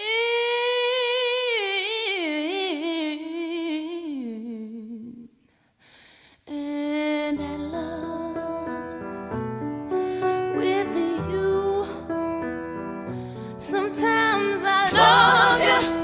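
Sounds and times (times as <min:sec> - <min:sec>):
piano notes: 0:07.4 - 0:16.0
solo voice singing wordless notes: 0:13.6 - 0:16.0.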